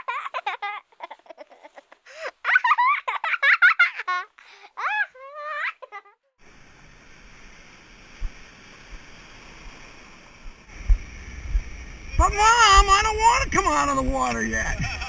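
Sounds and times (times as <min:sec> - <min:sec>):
low thumps: 0:10.7 - 0:15.0
wind on microphone: 0:10.8 - 0:15.0
high voice with sliding pitch: 0:12.1 - 0:14.7.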